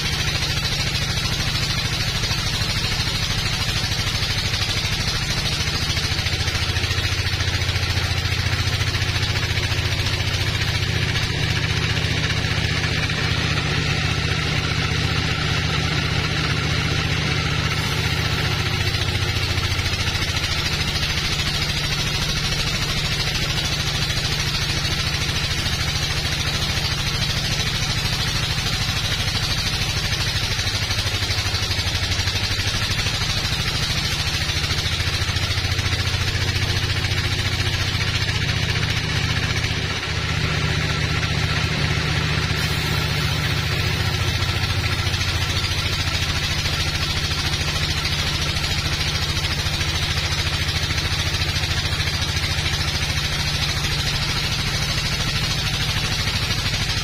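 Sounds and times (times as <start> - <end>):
band saw cutting wood: 17.4 - 36.5, 42.6 - 50.6.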